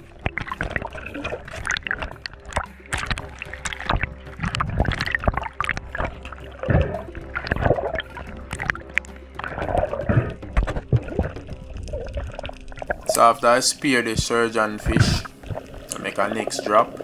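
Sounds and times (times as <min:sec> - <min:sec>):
underwater gurgling and bubbling: 0:00.0 - 0:17.0
sharp clicks and knocks: 0:00.2 - 0:12.9.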